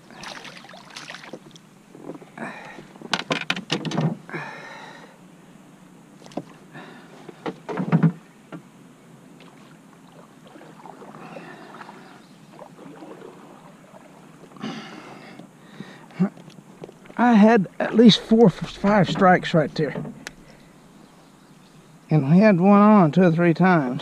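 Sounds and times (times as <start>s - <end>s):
knocks and rattles in a canoe: 0.1s - 4.3s, 7.2s - 8.7s, 15.8s - 20.7s
clatter against canoe hull: 1.3s - 4.2s, 18.6s - 20.6s.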